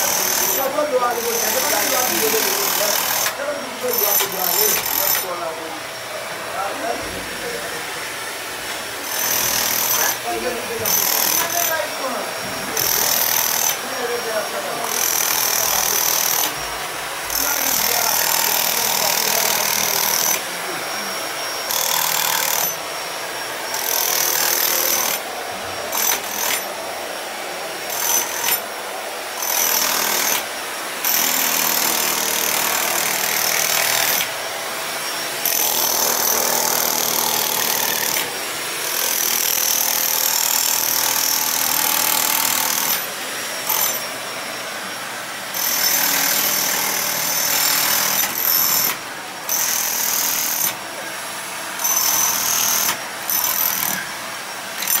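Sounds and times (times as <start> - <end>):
rotary hammer chipping concrete: 0.0 - 5.4, 9.0 - 11.9, 12.7 - 13.8, 14.9 - 16.7, 17.3 - 20.5, 21.6 - 22.8, 23.7 - 25.2, 25.9 - 26.7, 27.9 - 28.7, 29.4 - 34.4, 35.4 - 44.1, 45.6 - 50.8, 51.8 - 54.1, 54.8 - 55.0.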